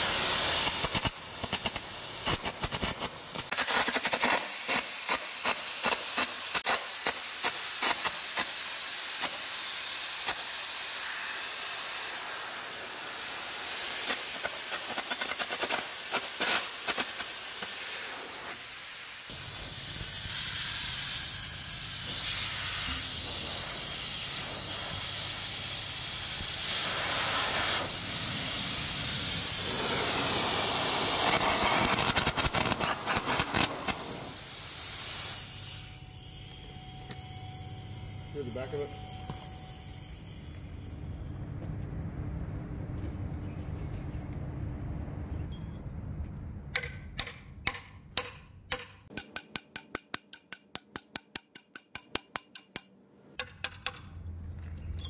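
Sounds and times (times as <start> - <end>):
arc crackling and spitting: 0.0 - 36.3
compressed air hiss: 0.0 - 41.0.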